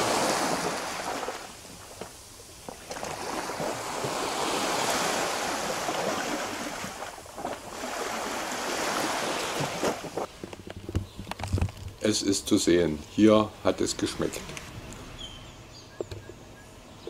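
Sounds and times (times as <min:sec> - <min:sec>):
small waves washing over sand: 0:00.0 - 0:10.3.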